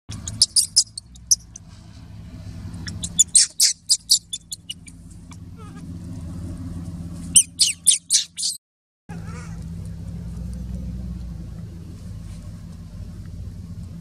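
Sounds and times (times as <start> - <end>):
baby monkey screaming: 0.1 - 1.5, 2.8 - 5.0, 5.6 - 5.8, 7.3 - 9.6
steady low hum: 0.1 - 8.4, 9.1 - 14.0.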